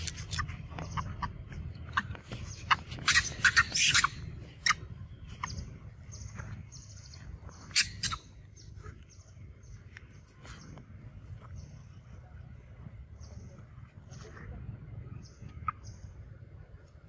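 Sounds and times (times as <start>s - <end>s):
high chirps: 0.4s - 8.6s
monkey screaming: 2.7s - 4.8s, 7.7s - 8.2s.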